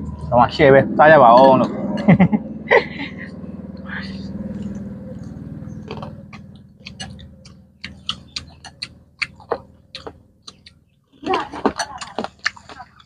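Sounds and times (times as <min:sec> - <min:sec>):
low droning hum: 0:00.0 - 0:13.0
crisp fruit crunching: 0:04.5 - 0:13.0.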